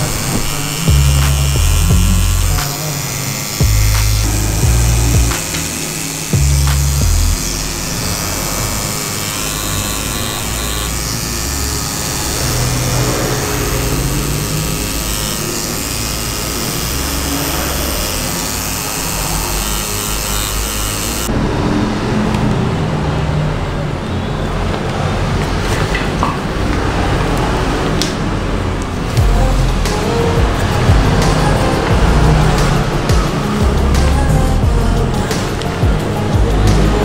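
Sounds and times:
tattoo machine buzzing: 0:00.0 - 0:21.3, 0:29.0 - 0:37.0
background music: 0:29.0 - 0:37.0.

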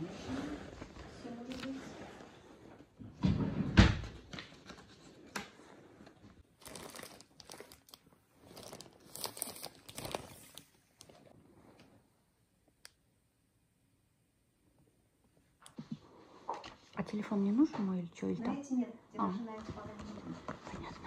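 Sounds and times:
plastic bag crinkling: 0:06.4 - 0:11.3.

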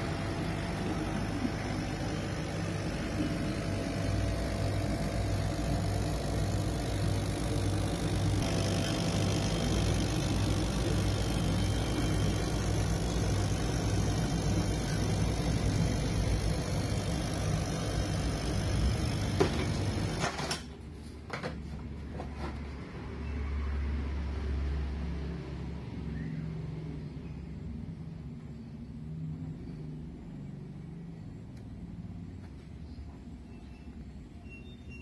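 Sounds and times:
laser cutter hum and throb: 0:00.0 - 0:20.3
room sound: 0:00.0 - 0:22.8.

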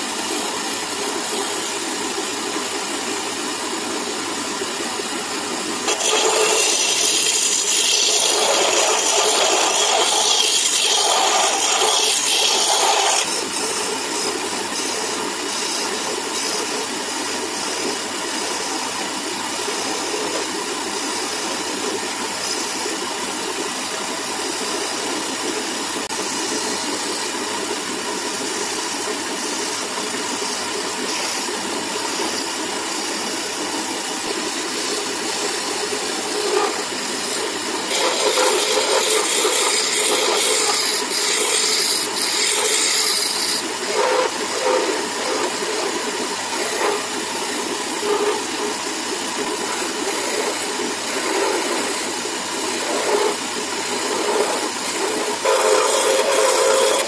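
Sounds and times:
gouge hissing on spinning wood: 0:00.0 - 0:57.0
wood lathe running: 0:00.0 - 0:57.0.

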